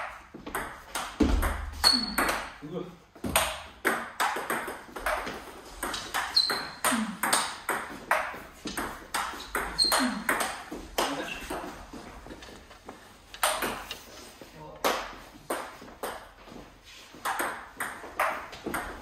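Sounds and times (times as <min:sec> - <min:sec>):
high squeaks: 0:06.2 - 0:06.8, 0:09.4 - 0:10.4.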